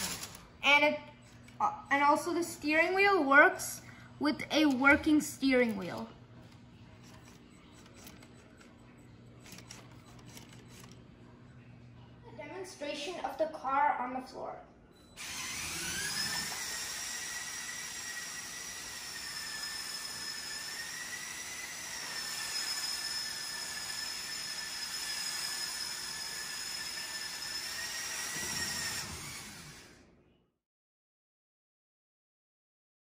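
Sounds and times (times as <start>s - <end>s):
high-pitched electric motor whine: 15.2s - 30.0s.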